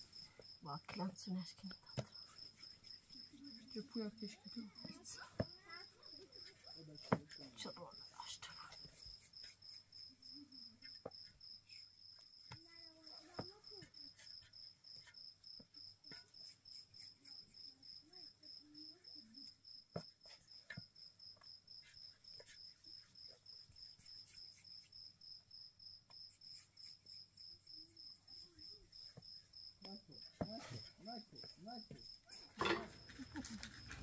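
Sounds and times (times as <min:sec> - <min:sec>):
insect chirping: 0:00.0 - 0:34.0.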